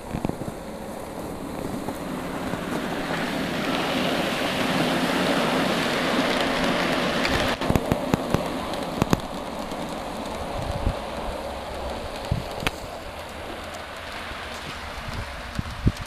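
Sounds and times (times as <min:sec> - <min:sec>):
model train plowing snow hiss: 0:00.0 - 0:16.0
sharp clicks: 0:06.3 - 0:16.0.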